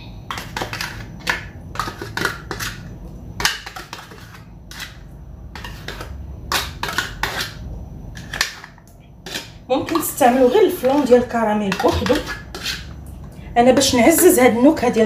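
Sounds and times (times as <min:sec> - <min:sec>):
spoon clinking and scraping dishes: 0:00.3 - 0:05.0, 0:05.6 - 0:07.6, 0:08.2 - 0:13.0.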